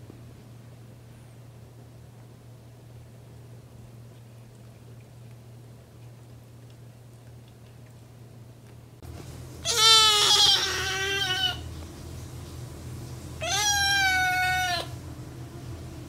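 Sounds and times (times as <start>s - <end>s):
kitten meowing: 9.7s - 11.6s, 13.4s - 14.9s.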